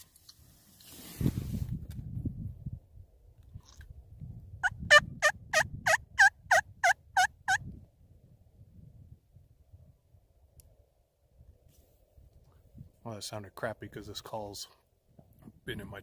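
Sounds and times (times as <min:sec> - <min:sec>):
turkey call yelps: 0:04.6 - 0:07.6.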